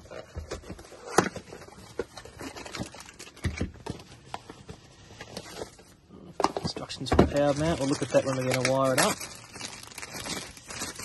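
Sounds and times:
packaging being handled: 0:06.5 - 0:11.0.

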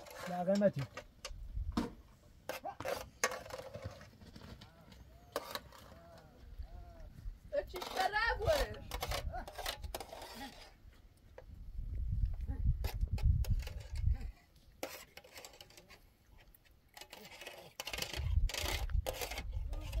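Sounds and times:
wind buffeting microphone: 0:11.5 - 0:14.3, 0:18.1 - 0:20.0.

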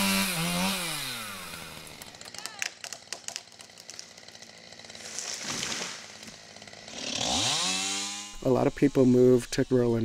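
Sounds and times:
chainsaw idling: 0:00.0 - 0:10.0
wood cracking: 0:01.7 - 0:06.7
tree falling swish: 0:05.0 - 0:06.3.

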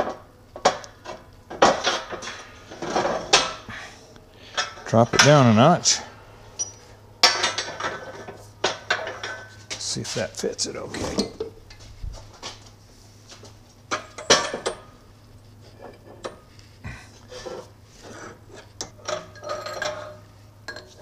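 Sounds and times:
steel clanking and clinking: 0:06.6 - 0:09.9, 0:18.3 - 0:21.0.

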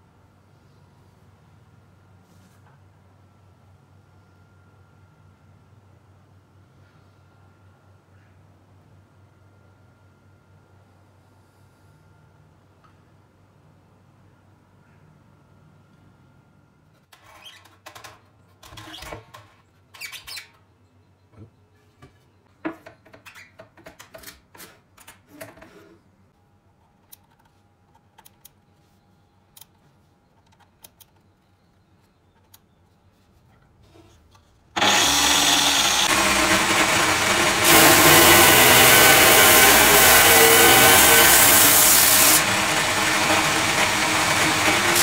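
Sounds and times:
angle grinder running: 0:34.8 - 0:45.0
wooden board being sanded: 0:34.8 - 0:45.0.

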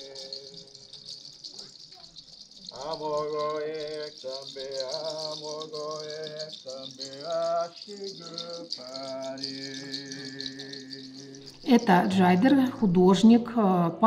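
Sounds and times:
seed shell rattle shaking: 0:00.0 - 0:13.4.

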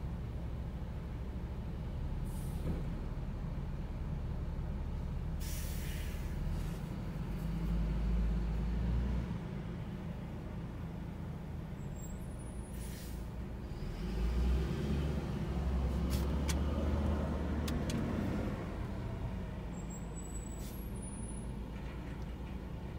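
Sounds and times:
brief hiss: 0:05.4 - 0:06.8, 0:12.7 - 0:13.3
garbage truck engine rumble: 0:12.8 - 0:22.9.

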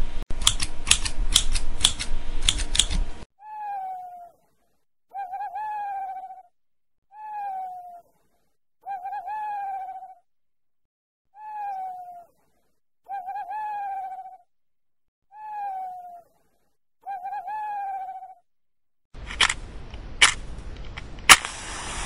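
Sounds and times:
owl calling: 0:03.4 - 0:04.4, 0:05.1 - 0:06.5, 0:07.1 - 0:08.2, 0:08.8 - 0:10.3, 0:11.4 - 0:12.4, 0:13.1 - 0:14.5, 0:15.3 - 0:16.4, 0:17.0 - 0:18.4.

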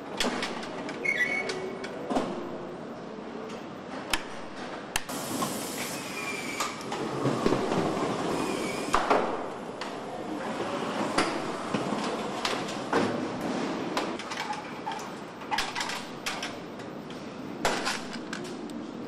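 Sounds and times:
steady machine hum and hiss: 0:01.7 - 0:19.0
parts clicking and knocking: 0:17.6 - 0:18.8.

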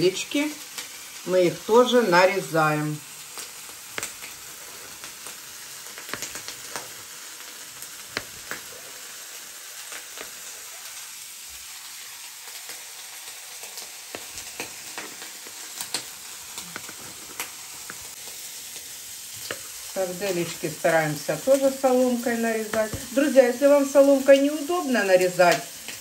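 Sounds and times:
meat sizzling in a skillet: 0:00.0 - 0:26.0
sharp ticks and pops: 0:03.3 - 0:04.4, 0:05.0 - 0:06.9.

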